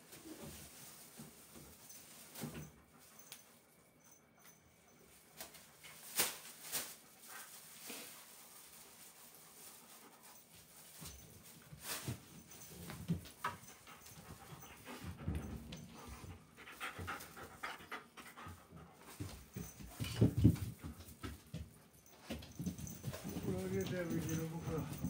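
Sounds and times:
light knocks and rustles: 0.0 - 3.6, 5.4 - 25.0
dog panting: 13.6 - 20.2.

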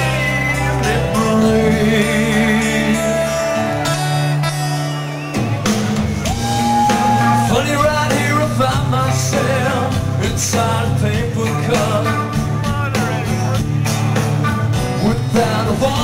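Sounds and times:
man singing: 0.0 - 4.0, 7.0 - 14.0, 14.6 - 16.0
drum kit: 0.0 - 16.0
electric guitars and bass: 0.0 - 16.0.

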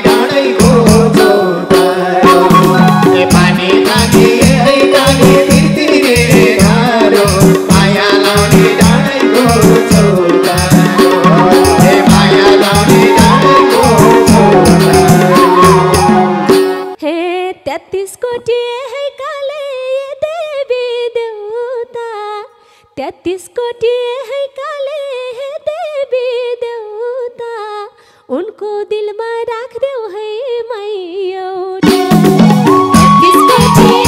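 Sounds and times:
woman singing solo: 10.8 - 19.9, 30.2 - 34.0.

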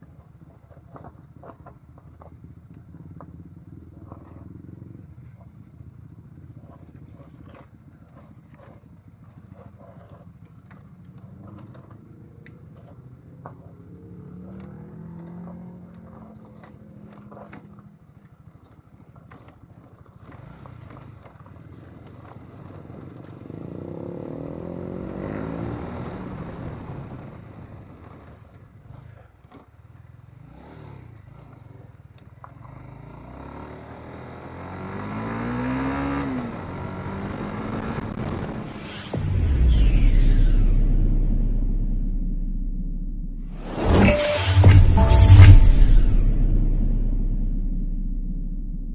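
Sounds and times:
motorcycle engine revving: 20.2 - 28.4, 29.9 - 48.9.

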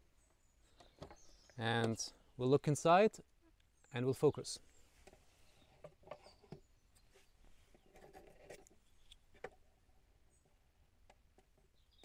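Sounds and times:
faint clicks and rubs: 4.9 - 9.6.

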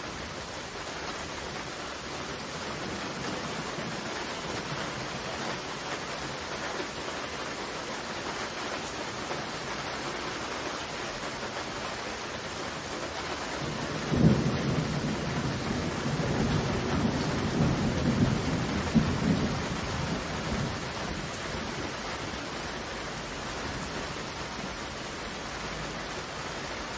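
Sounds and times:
heavy rain: 0.0 - 26.9
thunder crack and rumble: 13.5 - 21.9.

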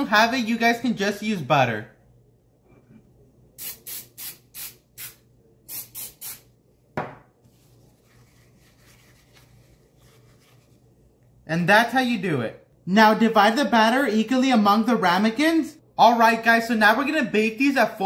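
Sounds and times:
cooking spray hissing: 3.6 - 6.5
knock: 7.0 - 7.3.

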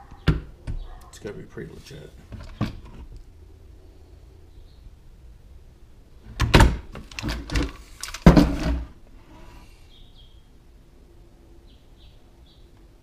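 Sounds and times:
rifle knocking on wooden workbench: 8.2 - 8.8.

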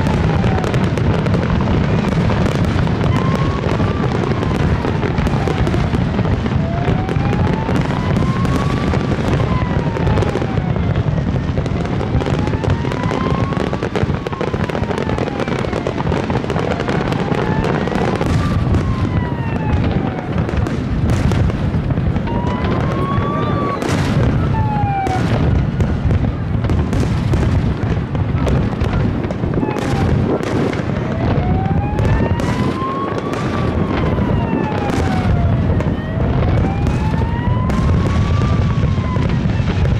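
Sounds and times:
fireworks booming and crackling: 0.0 - 39.9.

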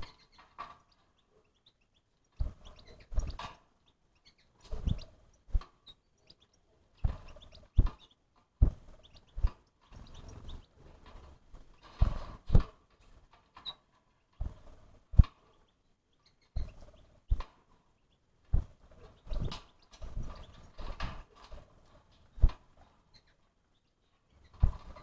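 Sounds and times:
animal sounds: 0.0 - 25.0
thumps and knocks: 2.4 - 3.6, 7.0 - 8.0, 8.6 - 10.1, 11.0 - 13.6, 24.5 - 25.0.

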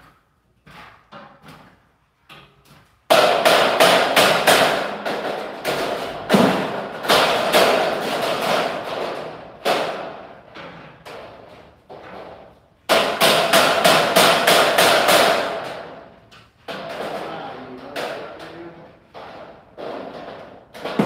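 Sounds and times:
hammer striking steel: 3.1 - 8.9.

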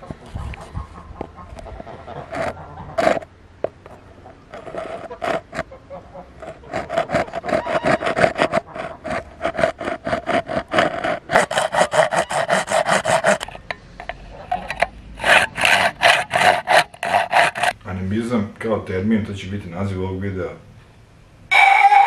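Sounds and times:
hand saw cutting bone: 2.1 - 3.3, 4.5 - 5.7, 6.4 - 13.6, 14.4 - 17.8.

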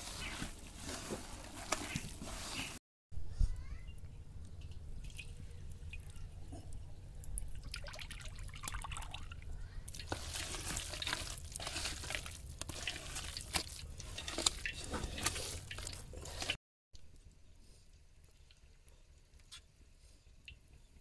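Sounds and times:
hands squelching wet batter: 5.0 - 16.6.

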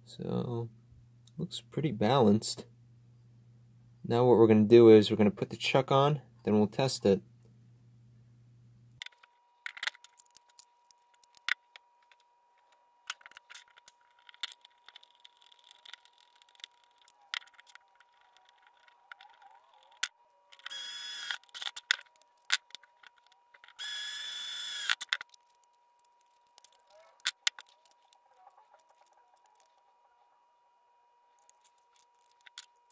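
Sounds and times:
plastic parts clicking and knocking: 9.0 - 24.0, 24.7 - 29.8, 31.4 - 32.9
impact driver whine: 23.8 - 25.0.

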